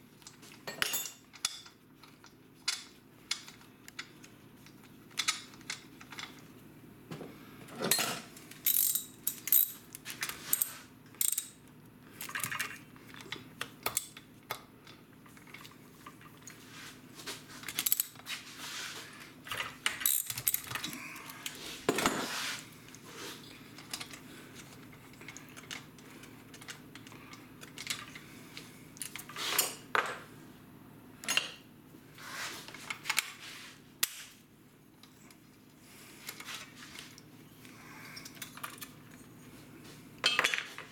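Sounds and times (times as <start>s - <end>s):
hand tools clicking and rattling: 7.8s - 9.8s, 19.5s - 22.2s
wrench working on fasteners: 7.9s - 9.8s, 10.4s - 11.6s, 20.0s - 20.9s.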